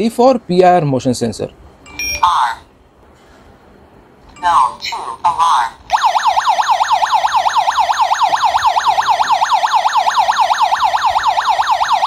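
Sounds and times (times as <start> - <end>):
alarm siren warbling: 5.9 - 12.0.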